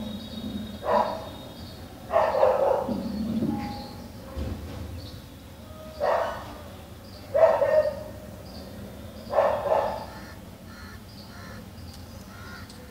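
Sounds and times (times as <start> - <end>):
loud animal calls: 9.3 - 12.9.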